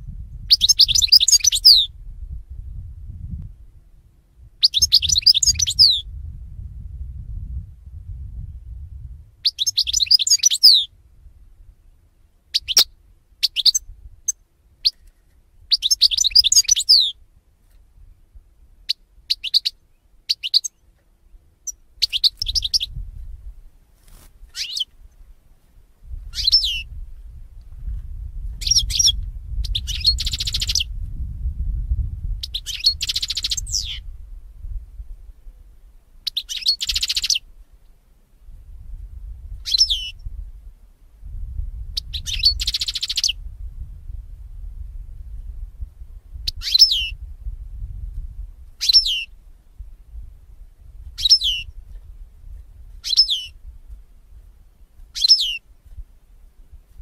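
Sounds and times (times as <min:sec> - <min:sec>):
goldfinch twittering song: 0:00.5 - 0:01.9, 0:04.6 - 0:06.0, 0:09.4 - 0:10.9, 0:12.5 - 0:13.8, 0:15.7 - 0:17.2, 0:21.6 - 0:22.9, 0:24.5 - 0:24.9, 0:26.3 - 0:26.9, 0:28.6 - 0:30.9, 0:32.4 - 0:34.0, 0:36.3 - 0:37.4, 0:39.6 - 0:40.2, 0:42.0 - 0:43.4, 0:46.5 - 0:47.2, 0:48.8 - 0:49.3, 0:51.2 - 0:51.8, 0:53.0 - 0:53.6, 0:55.2 - 0:55.6
low background rumble: 0:05.8 - 0:09.4.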